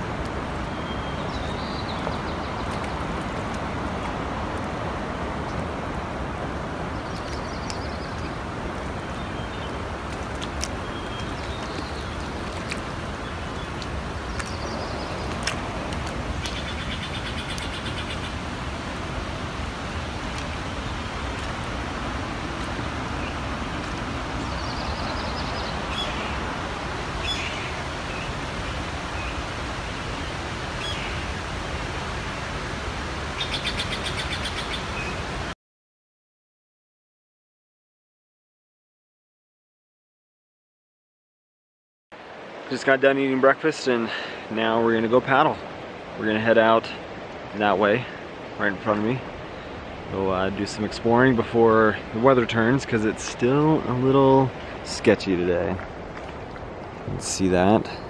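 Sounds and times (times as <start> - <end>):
rushing wind: 0.0 - 35.5, 43.4 - 58.0
bird chirps: 24.4 - 26.4.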